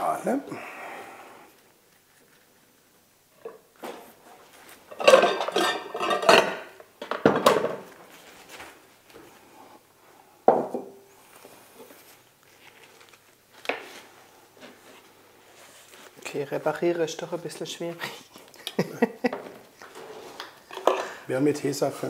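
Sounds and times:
dishes clinking and rattling: 4.9s - 7.9s, 20.7s - 21.2s.

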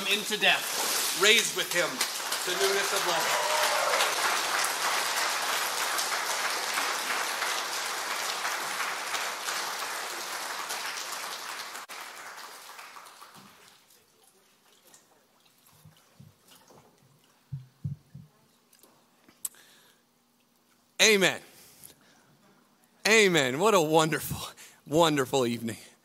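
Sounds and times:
congregation applauding: 1.1s - 14.0s.

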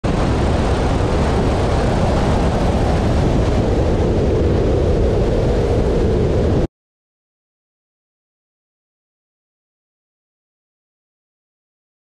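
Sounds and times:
light airplane engine drone: 0.0s - 6.7s.

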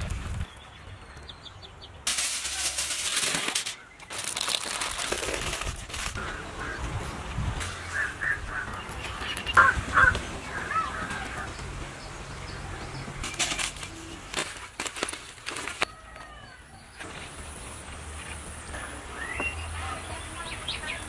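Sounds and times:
sharp clicks and crackles: 2.1s - 6.2s
birds calling: 6.0s - 14.7s, 15.8s - 21.0s.

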